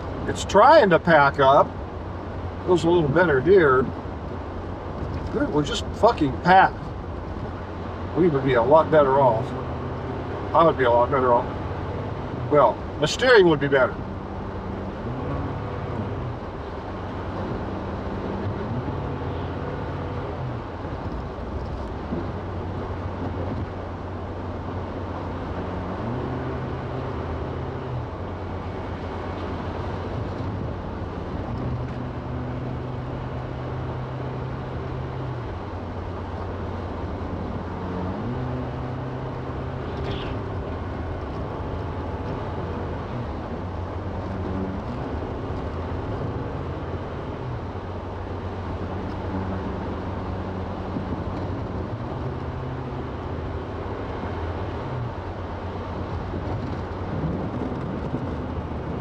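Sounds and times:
car engine revving: 0.0s - 59.0s
tyre rumble on snowy road: 26.8s - 59.0s.

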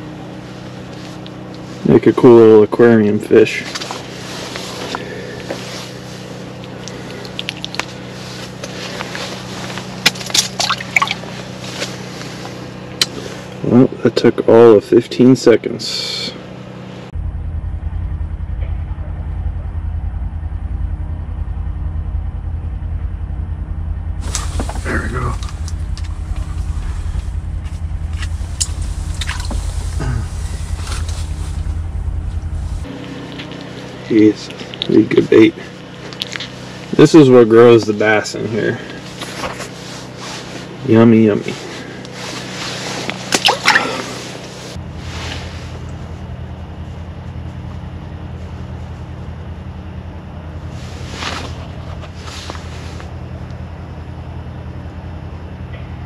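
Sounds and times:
low motor hum: 0.0s - 56.0s
water splashing and dripping: 10.3s - 11.2s.

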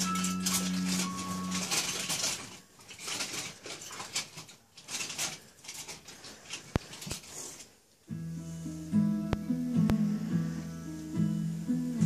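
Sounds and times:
background music: 8.1s - 12.0s.

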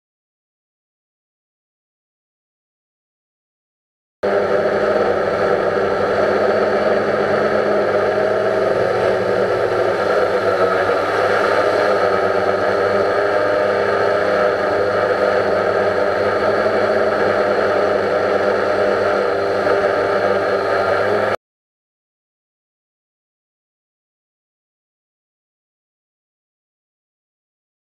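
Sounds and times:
drone propellers whirring: 4.2s - 21.4s.

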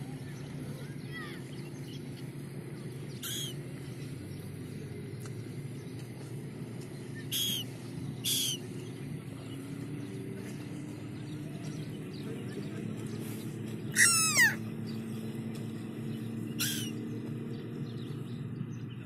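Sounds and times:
gulls calling: 0.7s - 4.2s, 7.0s - 8.8s, 13.2s - 15.3s, 16.2s - 17.3s.

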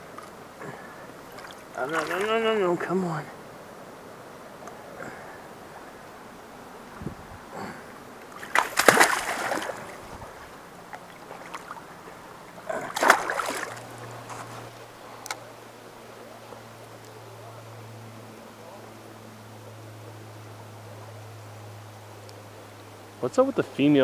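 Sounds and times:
water splashing: 0.0s - 3.2s, 6.9s - 14.9s
flowing river rushing: 0.0s - 16.2s.

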